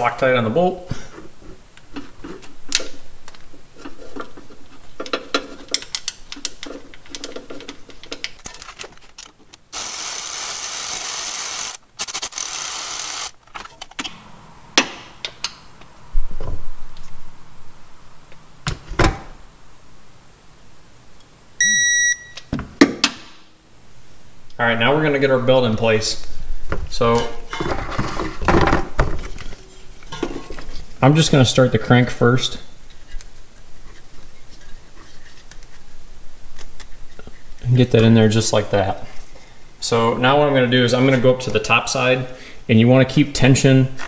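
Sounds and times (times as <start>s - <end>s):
tools clicking and knocking: 4.2s - 9.6s
cordless ratchet running: 9.7s - 13.3s
torque wrench beep: 21.6s - 22.4s.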